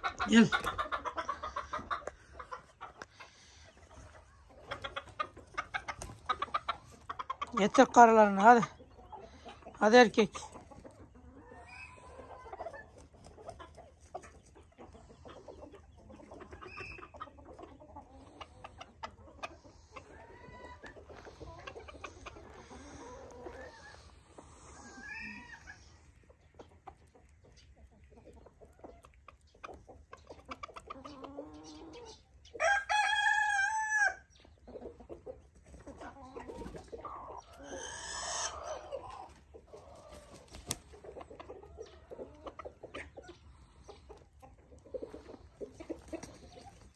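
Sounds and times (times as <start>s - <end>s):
chickens clucking: 0.0s - 46.9s
rooster crowing: 32.6s - 34.2s.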